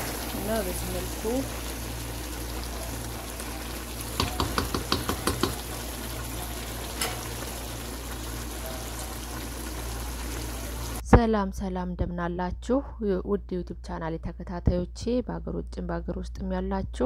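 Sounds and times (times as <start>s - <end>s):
food sizzling in a metal pot: 0.0s - 11.0s
wooden spoon knocking on pot: 4.2s - 5.7s.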